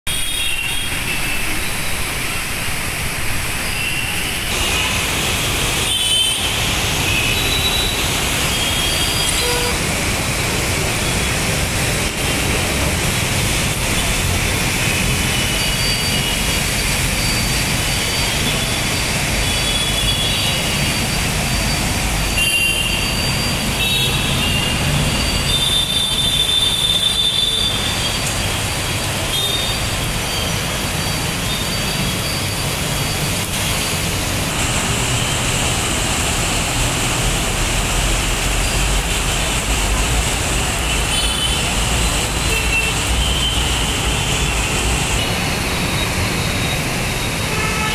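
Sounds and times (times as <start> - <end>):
heavy rain: 0.1 - 47.9
tyres on wet road: 0.1 - 47.9.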